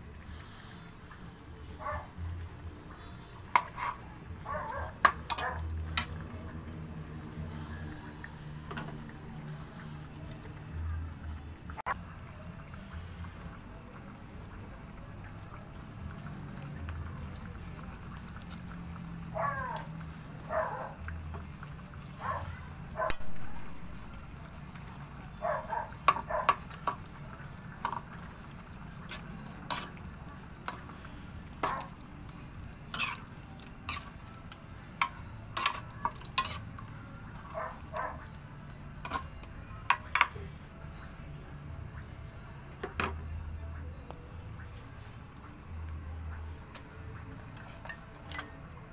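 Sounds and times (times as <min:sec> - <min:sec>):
metal utensils scraping a wok: 0:02.8 - 0:04.2, 0:05.0 - 0:06.1, 0:29.1 - 0:30.0, 0:32.8 - 0:34.2, 0:35.0 - 0:36.9, 0:39.0 - 0:40.5, 0:47.5 - 0:48.6.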